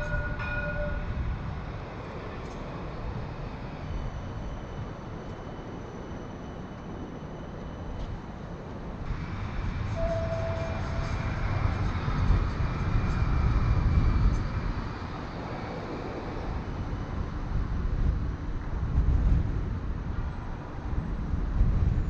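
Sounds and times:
short steady tone: 0.0s - 1.1s, 10.0s - 11.2s
faint high whine: 0.0s - 17.0s
city traffic noise: 0.0s - 22.0s
electric tram rumbling past: 0.0s - 22.0s.

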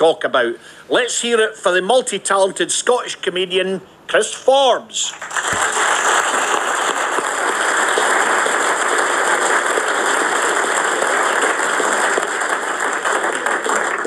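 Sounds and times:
audience applauding: 5.1s - 14.0s.

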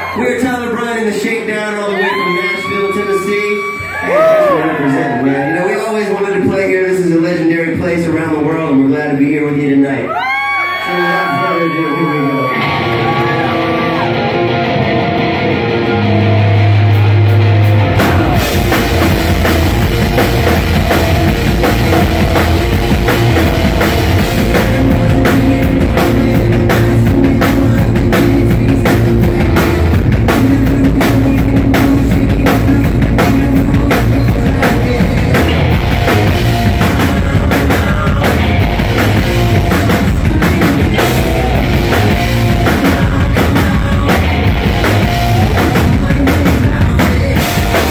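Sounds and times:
live rock band: 0.0s - 9.0s, 10.0s - 47.9s
drums driving beat: 11.0s - 47.9s.

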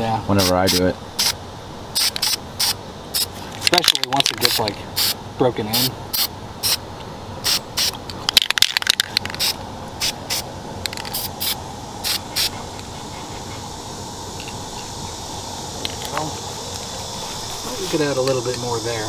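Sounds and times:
faint insect chirring: 0.3s - 6.8s, 7.5s - 19.0s
spray paint can hissing: 0.4s - 1.4s, 2.0s - 3.3s, 3.9s - 6.8s, 7.4s - 12.9s.

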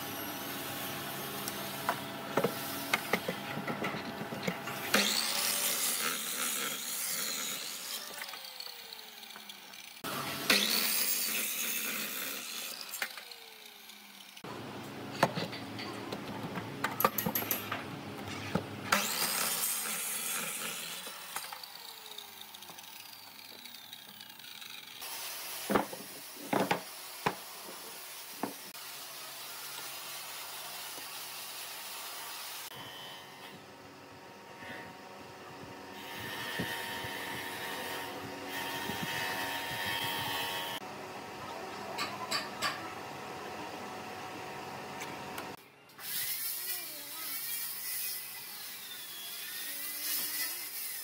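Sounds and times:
miter saw cutting wood: 0.0s - 14.5s, 18.3s - 33.7s, 34.5s - 40.9s, 46.0s - 51.0s.

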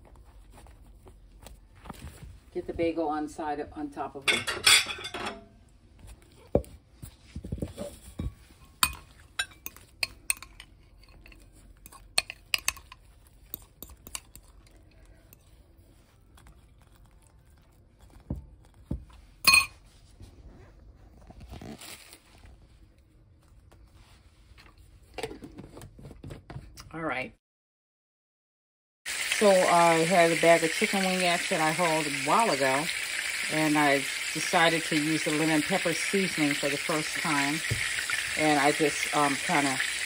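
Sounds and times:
metal spoon clinking on glass bowl: 4.3s - 5.4s, 8.2s - 14.5s, 19.4s - 19.7s.

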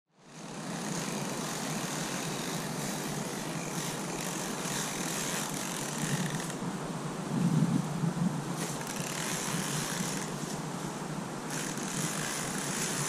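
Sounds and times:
outdoor hiss and rumble: 0.1s - 13.0s.

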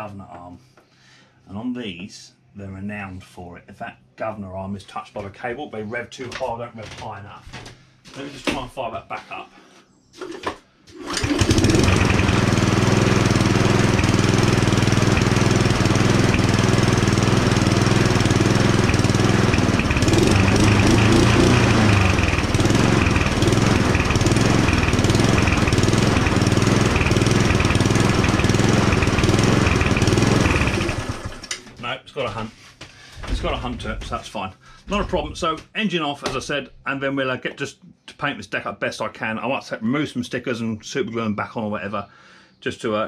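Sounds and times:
lawnmower engine running: 10.9s - 31.7s.

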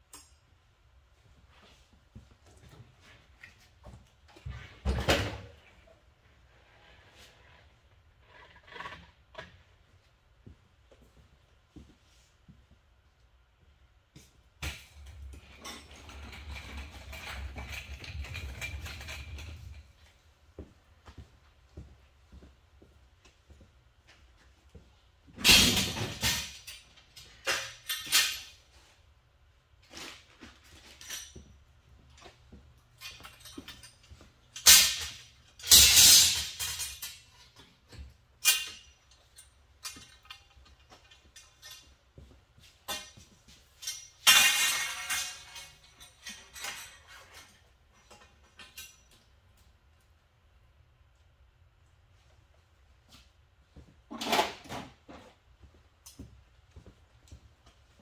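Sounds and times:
tools and parts clinking: 14.2s - 20.2s, 25.4s - 29.1s, 29.8s - 50.0s.

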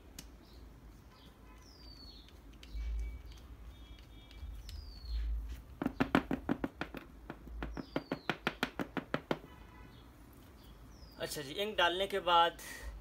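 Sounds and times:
plastic hopper tapping on wood: 5.8s - 9.4s.

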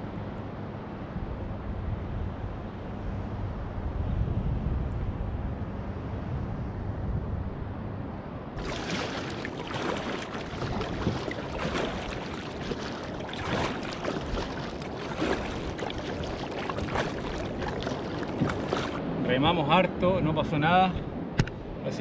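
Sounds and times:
kayak paddle splashing: 8.6s - 19.0s
water washing along hull: 8.6s - 19.1s.

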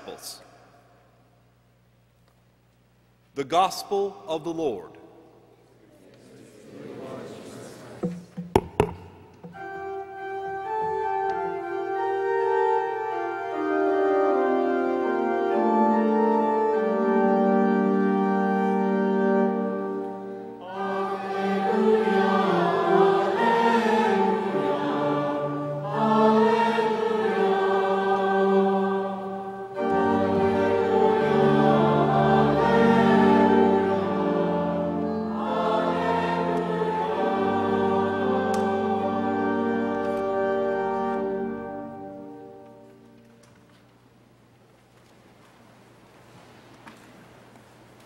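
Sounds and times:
choir singing: 6.0s - 8.1s, 20.6s - 42.6s
organ playing held chords: 8.5s - 43.4s.

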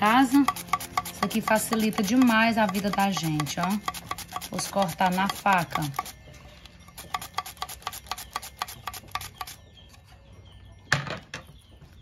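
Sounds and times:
cucumber sliced on mandoline: 0.2s - 6.1s.

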